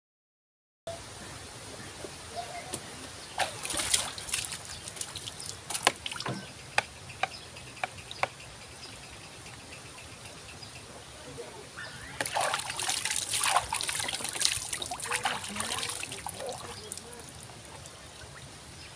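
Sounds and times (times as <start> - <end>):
water sloshing and splashing: 3.3 - 6.5, 12.2 - 18.7.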